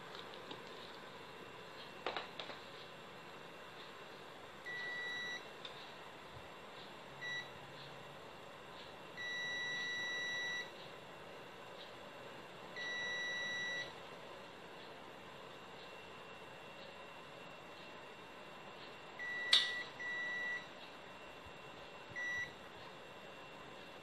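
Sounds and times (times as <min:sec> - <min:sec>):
multimeter continuity buzzer beeping: 0:04.6 - 0:05.5, 0:07.2 - 0:07.6, 0:09.2 - 0:10.8, 0:12.8 - 0:14.0, 0:19.2 - 0:20.7, 0:22.2 - 0:22.6.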